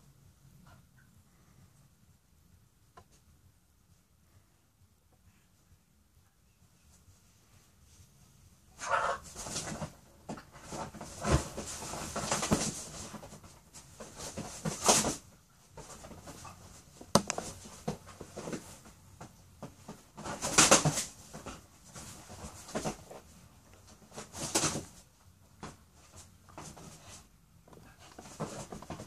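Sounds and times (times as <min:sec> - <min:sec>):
animals scrabbling on leather couch: 0:08.8 - 0:29.0.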